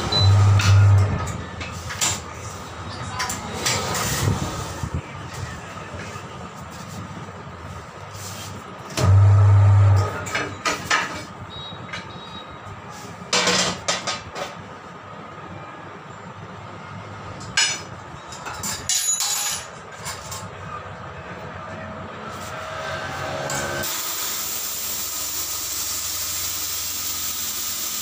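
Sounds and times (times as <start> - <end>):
turntable motor humming: 0.0 - 1.2.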